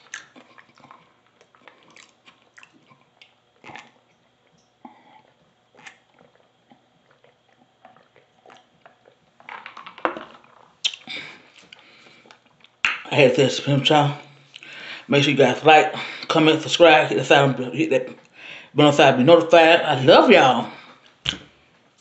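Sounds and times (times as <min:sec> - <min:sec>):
mouth clicks: 0:10.8 - 0:13.1.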